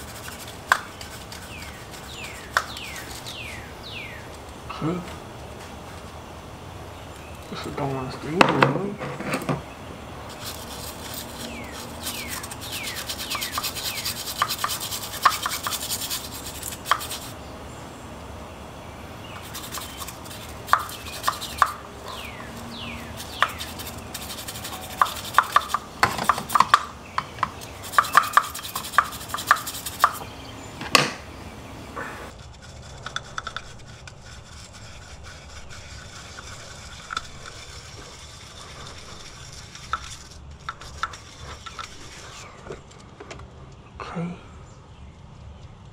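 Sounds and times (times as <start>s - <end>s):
scrubbing metal: 0.0s - 6.2s, 7.4s - 17.5s, 19.2s - 30.5s, 31.9s - 42.9s.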